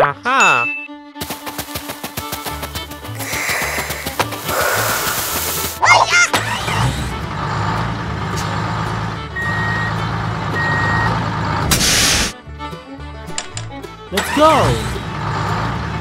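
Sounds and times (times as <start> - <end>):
diesel engine running: 1.2 - 16.0
air-brake hiss: 3.2 - 5.8, 11.7 - 12.4
reversing beeps: 9.4 - 10.0, 10.6 - 11.2.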